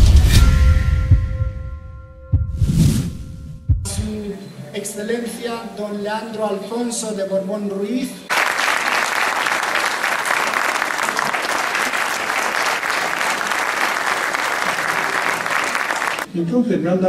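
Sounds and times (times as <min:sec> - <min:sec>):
audience applauding: 0:08.3 - 0:16.3.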